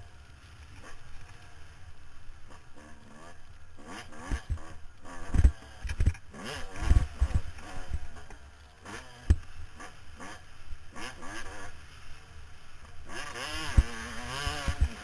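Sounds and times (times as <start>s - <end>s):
dirt bike engine revving: 2.4s - 15.0s
wind on microphone: 13.1s - 15.0s.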